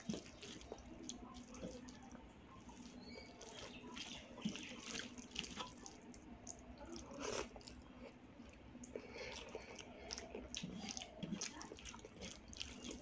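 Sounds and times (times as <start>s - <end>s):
rice squelching by hand: 0.0s - 6.1s, 9.0s - 13.0s.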